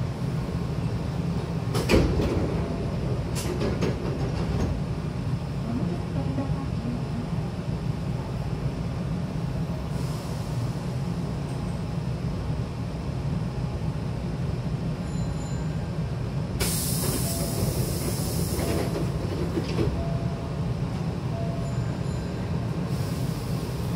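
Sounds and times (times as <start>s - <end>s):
stopped train humming: 0.0s - 23.9s
train doors air hiss: 9.8s - 11.0s, 16.5s - 20.0s, 22.7s - 23.9s.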